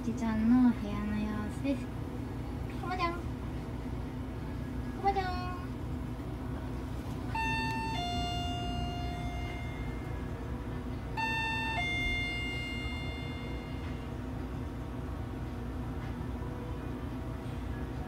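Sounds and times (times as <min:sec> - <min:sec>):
steady low hum: 0:00.0 - 0:18.0
electronic two-note chime: 0:07.3 - 0:10.4, 0:11.2 - 0:14.2.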